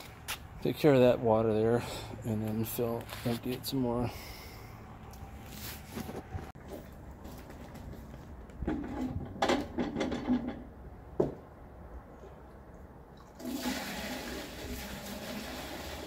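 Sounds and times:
water pouring and splashing: 13.2s - 16.0s.

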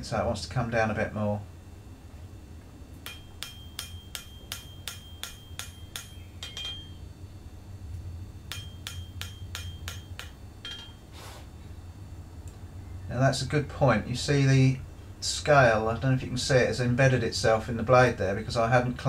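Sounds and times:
hammer striking steel on anvil: 3.0s - 7.1s, 8.5s - 11.1s.

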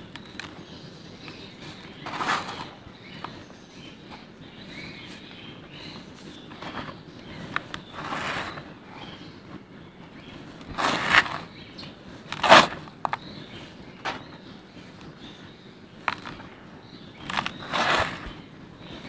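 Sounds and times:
small sharp grit clicks: 10.6s - 11.5s, 12.2s - 13.3s, 17.2s - 18.4s
dry dirt crumbling into container: 12.2s - 13.3s, 17.2s - 18.4s.

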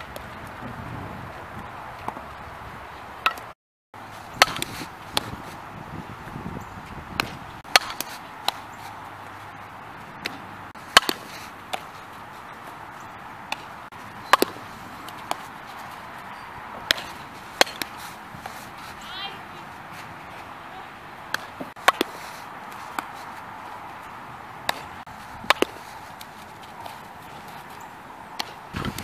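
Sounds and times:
ball hitting dirt: 0.0s - 2.6s, 3.2s - 29.0s
bat striking ball: 3.2s - 3.5s, 4.2s - 5.5s, 7.0s - 29.0s
ball smacking into glove: 4.4s - 5.4s, 7.1s - 8.7s, 10.2s - 11.9s, 13.5s - 16.0s, 16.8s - 18.7s, 21.3s - 23.4s, 24.0s - 27.8s, 28.4s - 29.0s.

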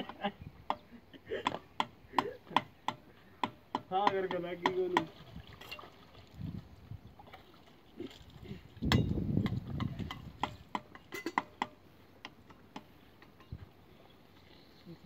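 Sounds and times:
wooden poles knocking: 0.0s - 5.2s, 8.8s - 13.6s.

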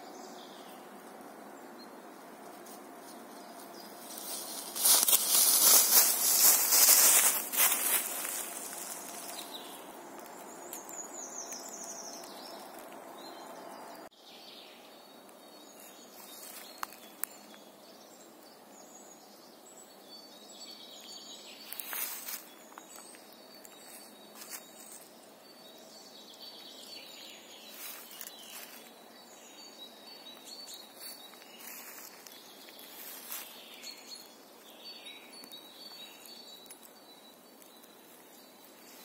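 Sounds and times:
birds chirping: 0.0s - 39.0s
footsteps crunching through dry leaves: 2.5s - 13.4s, 15.7s - 17.5s, 21.6s - 25.2s, 27.5s - 29.4s, 30.3s - 36.3s.

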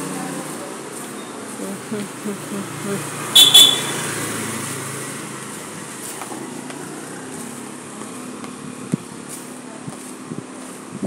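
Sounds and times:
street noise: 0.0s - 11.0s
small motorbike engine running: 1.6s - 9.1s.

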